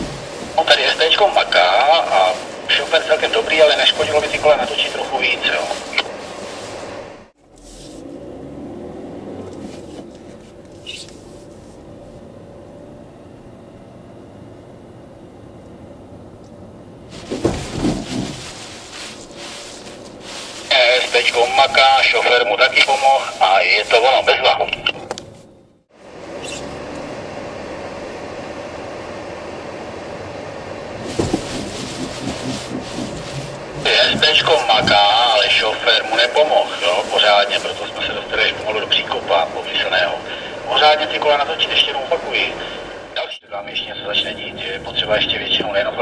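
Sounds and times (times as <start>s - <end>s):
car engine and tyre hum: 0.0s - 46.0s
car thump: 17.1s - 18.9s, 31.0s - 35.5s.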